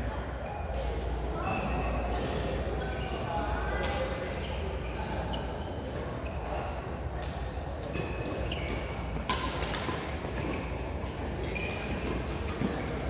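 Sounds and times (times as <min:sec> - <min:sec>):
shoes squeaking on court floor: 0:00.0 - 0:13.0
racket hitting shuttlecock: 0:07.2 - 0:12.9.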